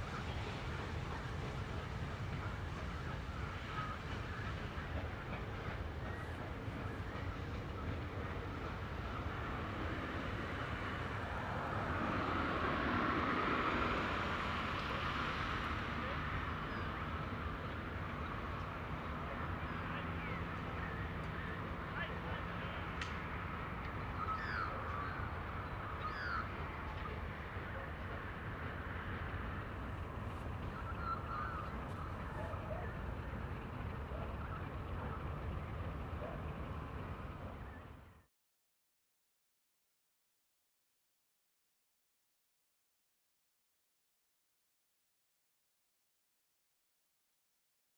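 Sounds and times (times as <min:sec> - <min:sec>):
steam locomotive rumble and hiss: 0:00.0 - 0:38.0
birds chirping: 0:23.9 - 0:27.1, 0:30.4 - 0:38.0.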